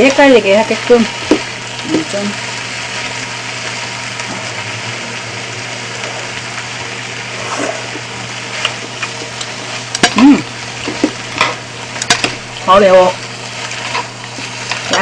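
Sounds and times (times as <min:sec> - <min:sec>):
food sizzling in a frying pan: 0:00.0 - 0:15.0
utensils clicking against pan: 0:10.8 - 0:12.4.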